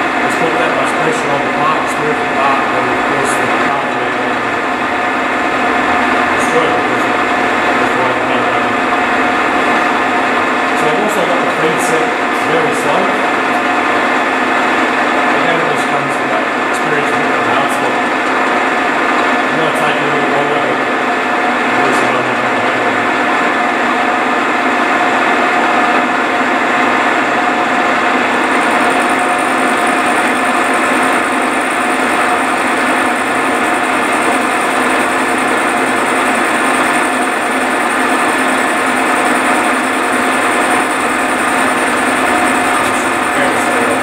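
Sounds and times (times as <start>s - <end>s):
milling machine running: 0.0s - 44.0s
thin high-pitched whine: 28.4s - 44.0s.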